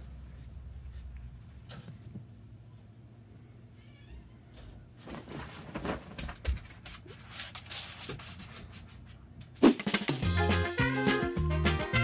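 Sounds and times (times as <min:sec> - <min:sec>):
pet crying softly: 0:03.7 - 0:04.8
rustling in bedding: 0:04.9 - 0:06.2.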